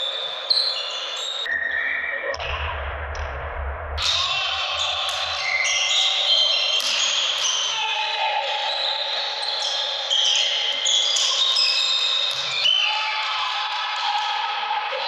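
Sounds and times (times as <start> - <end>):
players' voices and calls: 4.0 - 15.0.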